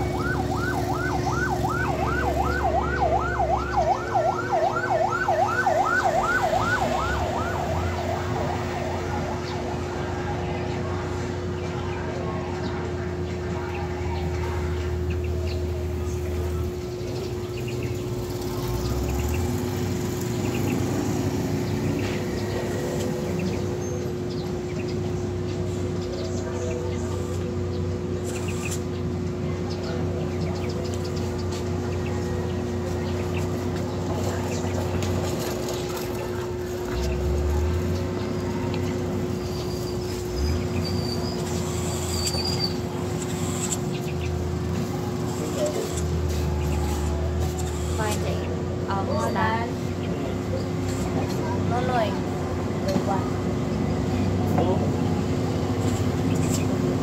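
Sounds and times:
birds chirping: 0.0 - 57.0
constant hum: 0.0 - 57.0
construction machinery rumbling: 0.0 - 57.0
motorcycle passing: 15.4 - 25.6.

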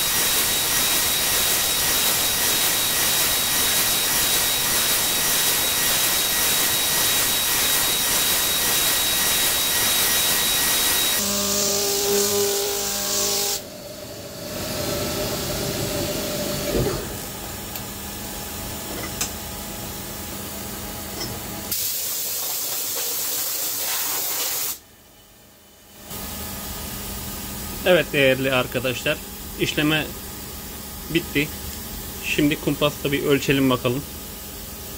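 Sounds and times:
milling machine high whine: 0.0 - 17.7
air-blast nozzle hissing: 21.7 - 24.8.

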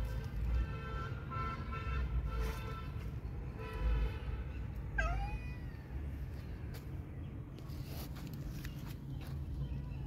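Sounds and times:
cat meowing: 5.0 - 5.9.

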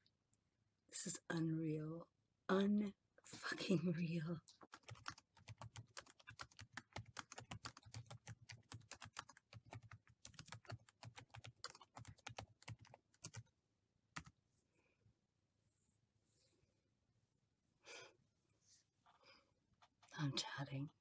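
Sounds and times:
fast typing on keyboard: 4.5 - 13.5.

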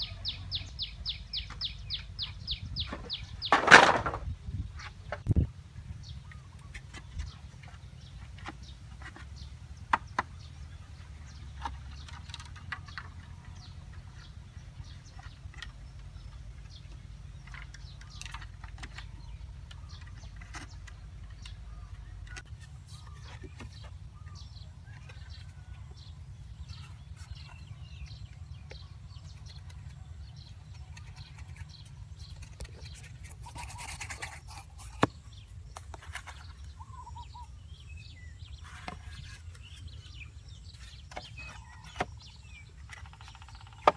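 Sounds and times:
bamboo poles knocking: 2.9 - 4.3, 9.9 - 10.4, 42.9 - 43.9.

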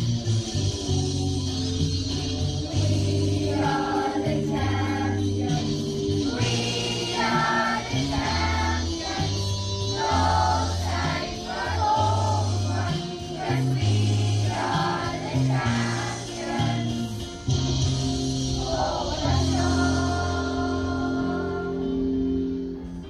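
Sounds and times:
instrumental backing with bass line: 0.0 - 23.0
choir singing: 2.6 - 17.2, 18.4 - 22.2.

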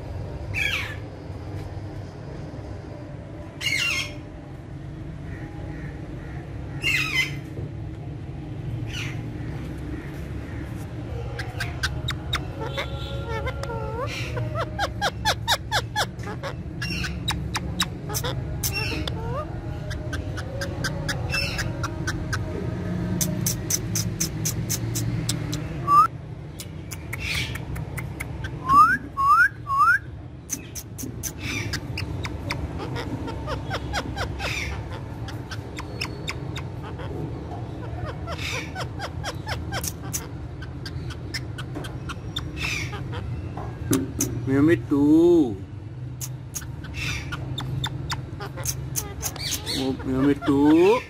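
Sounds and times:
low background hum: 0.0 - 51.0
parakeet squawking: 8.9 - 22.5, 23.2 - 44.4, 46.2 - 51.0
parakeet rising whistles: 28.6 - 30.1.

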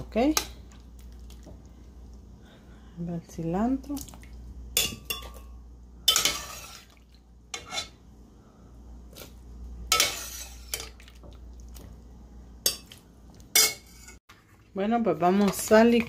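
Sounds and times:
metal spoon scraping a pot: 6.1 - 6.9, 7.5 - 8.0, 9.9 - 10.9, 13.6 - 14.2.

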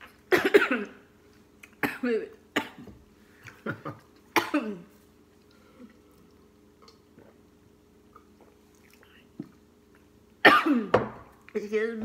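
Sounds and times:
person coughing: 0.3 - 1.0, 4.4 - 4.9, 10.4 - 11.0.

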